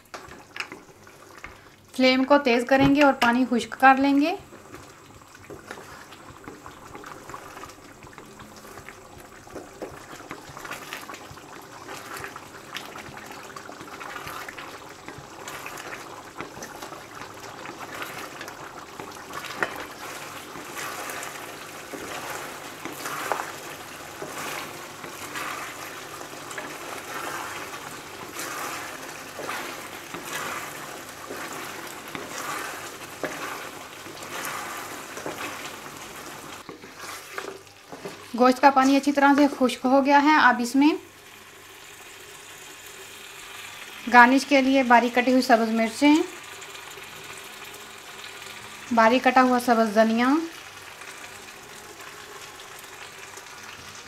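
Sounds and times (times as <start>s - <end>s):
wooden spatula stirring: 0.0s - 1.8s, 2.5s - 40.8s
gravy bubbling and sizzling: 0.0s - 54.0s.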